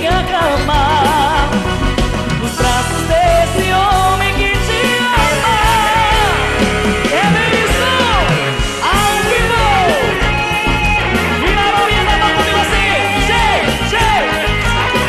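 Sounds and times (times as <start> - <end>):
bass and drums: 0.0 - 15.0
electric guitar solo: 4.7 - 15.0.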